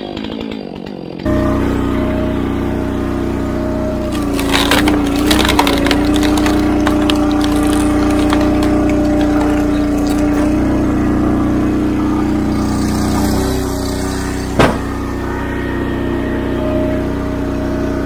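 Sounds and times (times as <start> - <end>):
gas engine running under load: 0.0 - 18.0
wood cracking and splintering: 4.0 - 10.8, 12.6 - 15.0.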